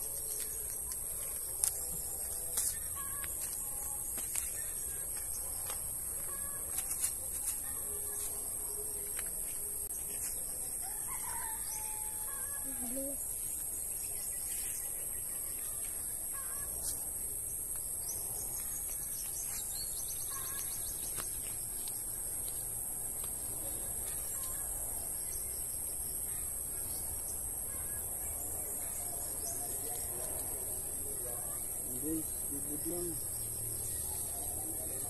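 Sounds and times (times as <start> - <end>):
insect chorus drone: 0.0 - 35.0
bird chirps and calls: 18.1 - 21.9.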